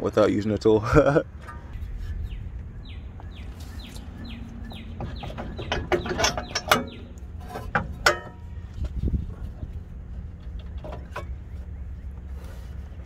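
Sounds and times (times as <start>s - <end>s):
metal clinks and knocks: 5.0s - 9.0s.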